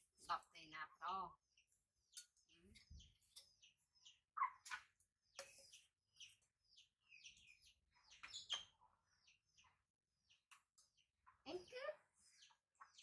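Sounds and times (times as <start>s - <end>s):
high-pitched chirps and squeaks: 2.2s - 6.4s, 7.2s - 8.9s.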